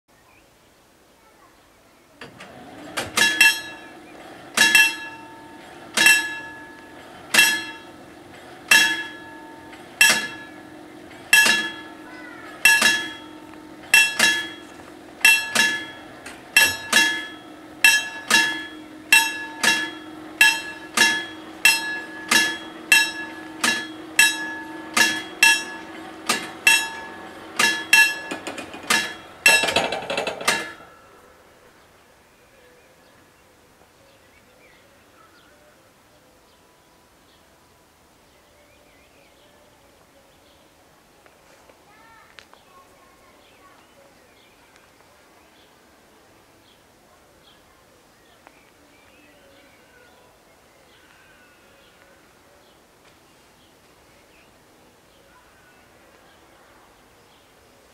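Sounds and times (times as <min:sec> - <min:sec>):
short rattle: 0:02.2 - 0:31.1
steady hum: 0:02.3 - 0:32.1
level crossing bells ringing: 0:02.4 - 0:31.3.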